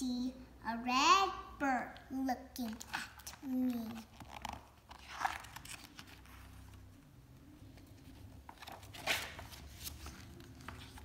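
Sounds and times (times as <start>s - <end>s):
paper rustle: 2.8s - 6.9s, 7.7s - 11.0s.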